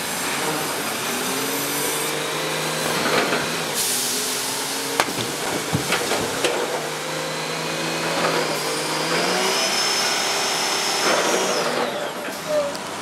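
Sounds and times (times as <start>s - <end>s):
logs splashing into water: 5.0s - 7.0s.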